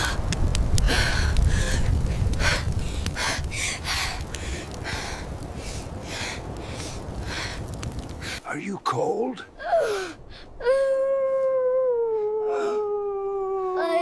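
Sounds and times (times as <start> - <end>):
woman panting and gasping: 9.6 - 13.9.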